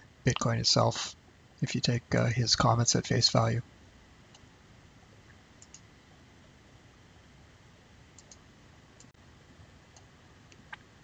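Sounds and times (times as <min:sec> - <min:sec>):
computer mouse clicks: 0:05.6 - 0:05.9, 0:08.2 - 0:08.4.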